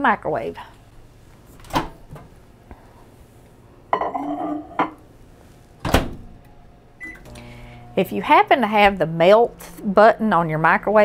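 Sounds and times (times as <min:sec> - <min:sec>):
ceramic bowl clattering: 0:03.9 - 0:05.0
microwave door shutting: 0:05.8 - 0:06.4.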